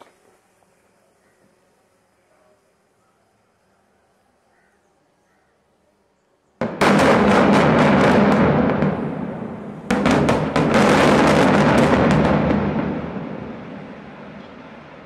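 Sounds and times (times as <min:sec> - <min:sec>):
sharp rapid explosive blasts: 0:06.6 - 0:15.0.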